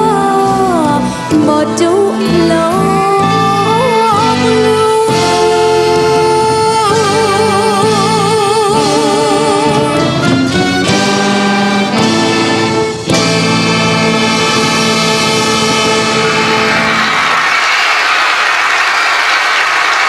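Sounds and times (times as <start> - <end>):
person singing: 0.0 - 10.3
live band with trumpets: 0.1 - 17.6
applause: 16.1 - 20.0.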